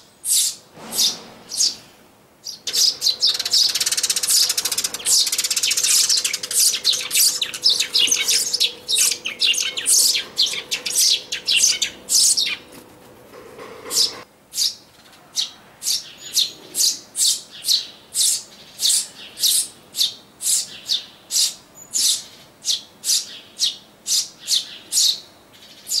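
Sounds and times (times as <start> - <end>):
nestlings chirping: 2.4 - 14.8.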